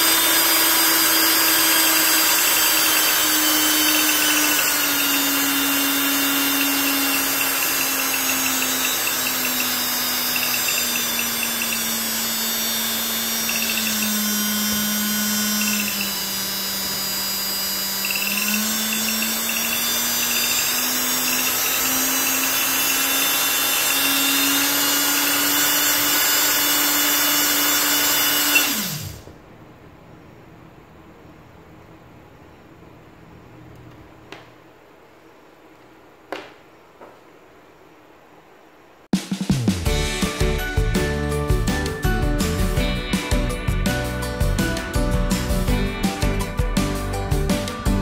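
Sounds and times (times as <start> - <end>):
electric motor whine: 0.0 - 29.3.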